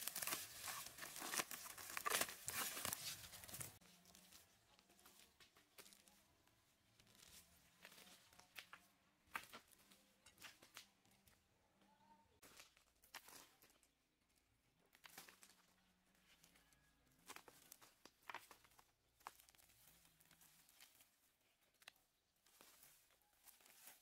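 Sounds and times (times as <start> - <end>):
roots tearing and leaves rustling: 0.0 - 4.3
weeds pulled from soil: 0.0 - 4.4.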